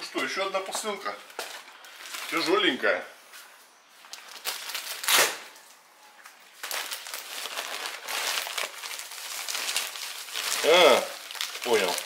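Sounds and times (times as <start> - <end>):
plastic crinkling and rustling: 0.0 - 2.8, 3.9 - 12.0
plastic bag ripping: 4.2 - 5.7, 6.5 - 12.0.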